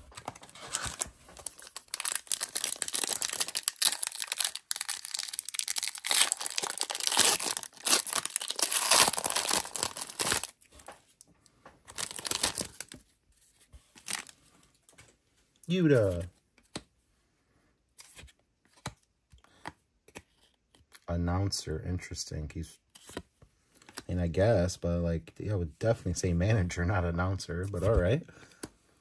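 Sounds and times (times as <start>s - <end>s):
cards rustling: 0.0s - 11.0s, 11.8s - 15.1s, 17.9s - 21.0s
foil wrapper tearing and crinkling: 0.7s - 10.6s, 11.9s - 12.9s, 14.0s - 14.3s.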